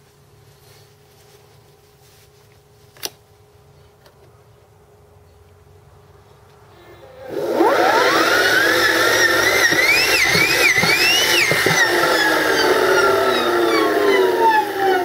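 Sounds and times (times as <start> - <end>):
electric motor whine: 7.0 - 15.0.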